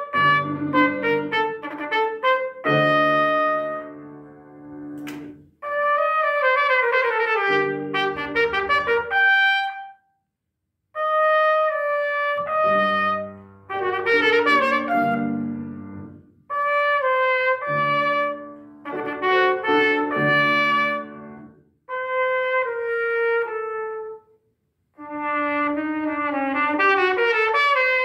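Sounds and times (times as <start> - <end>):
piano accompaniment: 0.0 - 9.9, 11.0 - 24.2, 25.0 - 28.0
trumpet playing: 0.0 - 10.0, 11.0 - 24.2, 25.0 - 28.0.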